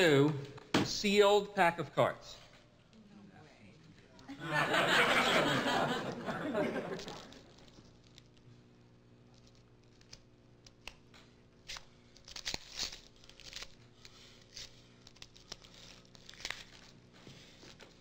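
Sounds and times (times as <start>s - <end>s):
plastic wrapping crinkling and ripping: 7.0s - 8.4s, 11.6s - 18.0s.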